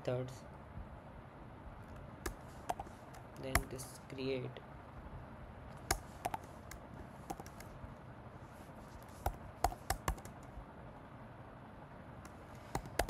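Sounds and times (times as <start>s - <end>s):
keyboard keys tapping: 2.2s - 3.8s, 5.8s - 7.7s, 9.2s - 10.5s, 12.8s - 13.0s.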